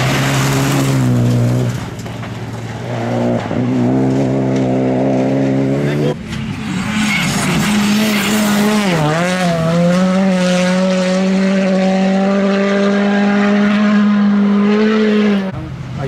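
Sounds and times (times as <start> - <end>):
rally car engine revving: 0.0 - 15.8.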